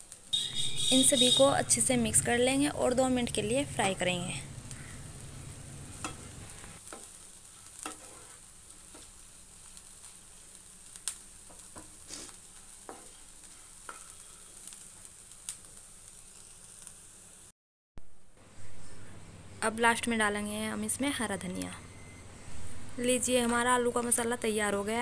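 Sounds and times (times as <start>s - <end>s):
food sizzling in a pan: 0.0s - 17.5s
wooden spatula scraping a pan: 6.0s - 9.2s.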